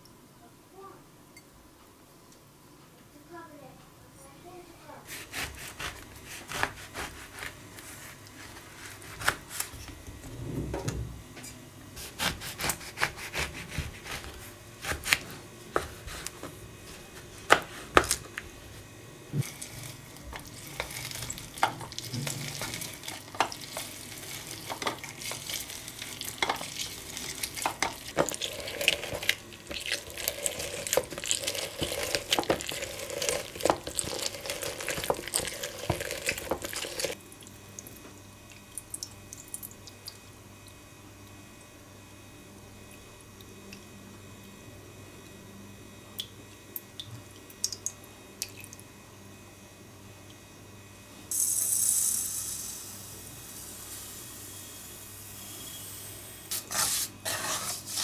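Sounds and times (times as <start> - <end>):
knife cutting orange on plastic board: 5.1 - 7.6
orange squeezed on citrus juicer: 19.4 - 37.2
wet grinding and squishing: 19.4 - 40.2.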